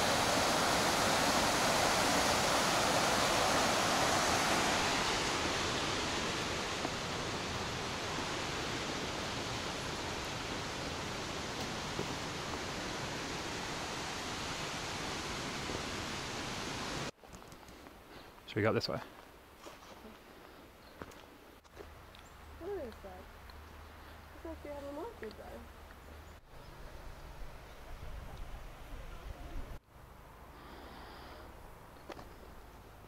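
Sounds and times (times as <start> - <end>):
stream rushing over rocks: 0.0 - 17.1.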